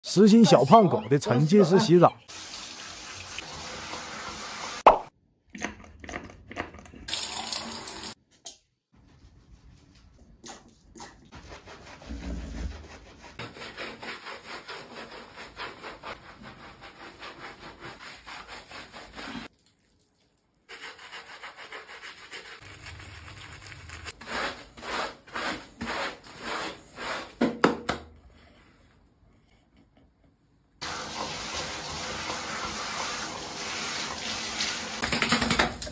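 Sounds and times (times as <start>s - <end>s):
hands rubbing wet fur: 9.0s - 12.2s.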